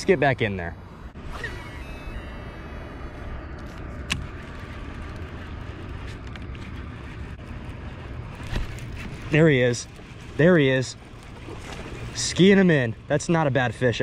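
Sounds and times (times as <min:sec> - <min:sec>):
fishing reel high whine: 0:01.2 - 0:03.4.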